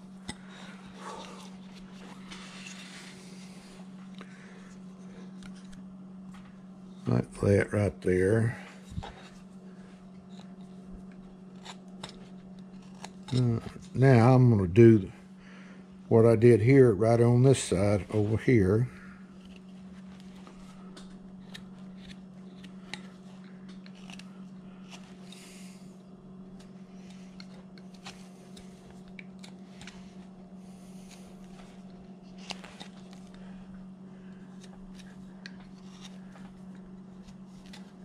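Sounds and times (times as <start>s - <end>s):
low hum: 0.0s - 38.0s
knife carving wood: 10.2s - 13.8s, 19.4s - 20.6s, 21.4s - 25.8s, 26.6s - 33.4s, 34.4s - 38.0s.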